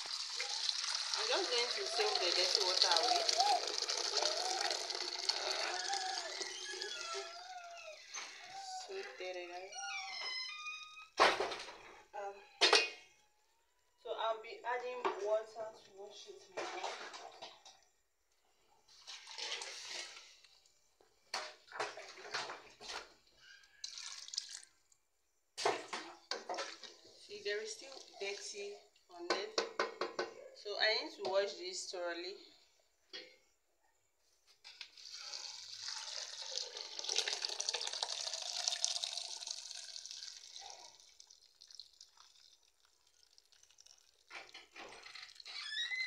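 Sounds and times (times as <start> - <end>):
water splashes: 0.0 - 6.5
water pouring into a pot: 0.0 - 7.3, 18.9 - 20.8, 23.7 - 25.0, 26.2 - 28.7, 34.7 - 45.7.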